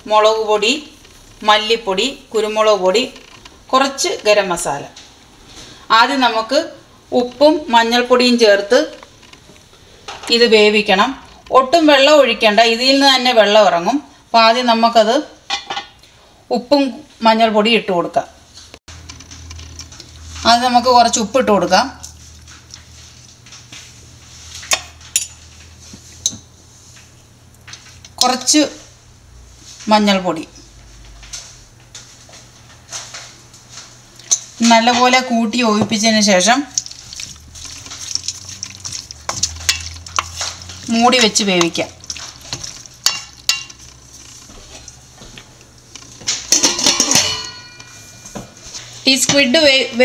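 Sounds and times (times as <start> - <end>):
metal lid clattering onto pot: 46.4 - 48.0.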